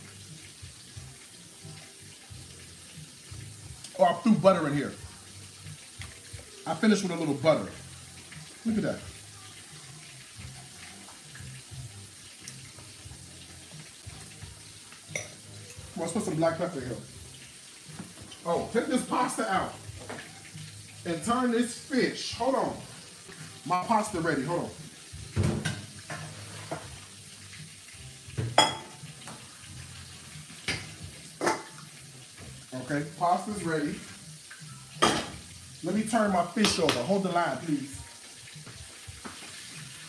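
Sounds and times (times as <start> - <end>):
fish frying: 0.0 - 40.0
pasta boiling: 0.0 - 40.0
metal pot clanking: 15.1 - 15.4, 25.3 - 27.0, 28.3 - 29.4, 30.6 - 31.8.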